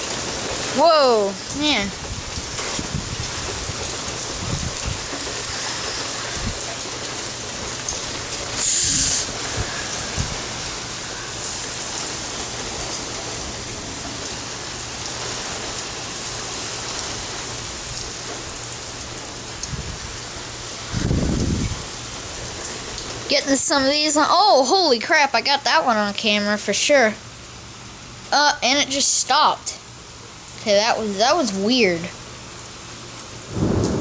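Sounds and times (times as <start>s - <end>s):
steady rain falling: 0.0s - 34.0s
loud hiss: 5.1s - 7.2s, 8.4s - 12.7s.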